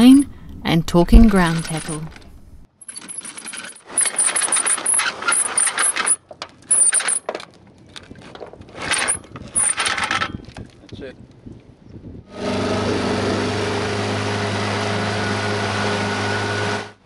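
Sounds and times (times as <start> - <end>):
anchor chain rattling: 1.2 - 11.0
windlass ratchet clicking: 1.3 - 11.0.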